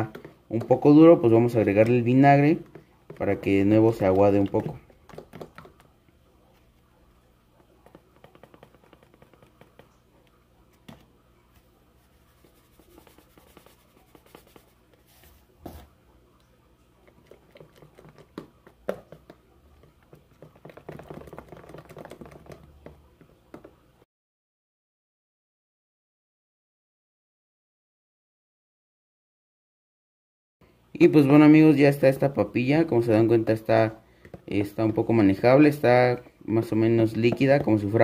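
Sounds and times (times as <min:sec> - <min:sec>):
plastic container clicks and knocks: 0:02.6 - 0:05.9, 0:07.8 - 0:09.9, 0:17.3 - 0:23.8, 0:37.1 - 0:38.0
squelching of mashed paste: 0:17.0 - 0:22.8.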